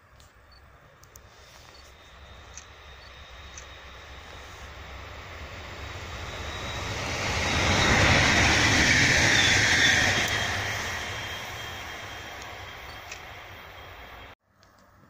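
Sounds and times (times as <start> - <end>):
faint high whine: 0.1 - 14.4
train wheels rumbling on rails: 1.1 - 14.4.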